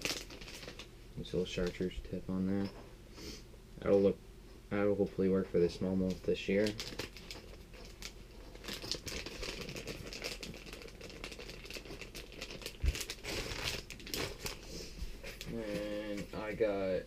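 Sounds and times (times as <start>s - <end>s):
plastic packaging crinkling: 0.0s - 2.0s, 6.0s - 15.8s.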